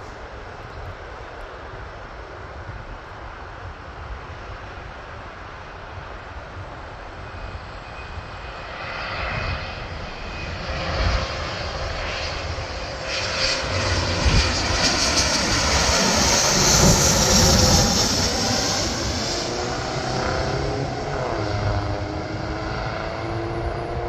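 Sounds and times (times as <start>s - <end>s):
jet engine whine overhead: 0.0s - 24.0s.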